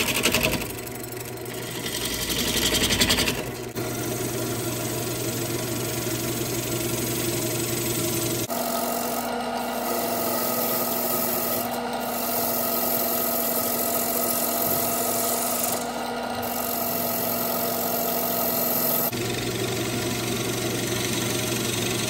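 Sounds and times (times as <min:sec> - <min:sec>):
wood lathe humming: 0:00.0 - 0:22.0.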